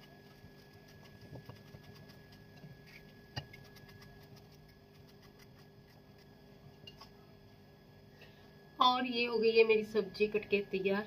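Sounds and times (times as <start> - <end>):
knife cutting pumpkin: 0.0 - 6.4
low steady hum: 0.0 - 11.0.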